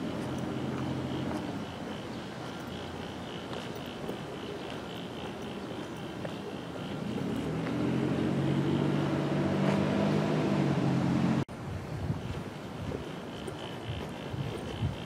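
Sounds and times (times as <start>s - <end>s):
low engine-like hum: 0.0s - 11.5s
outdoor background noise: 0.0s - 15.0s.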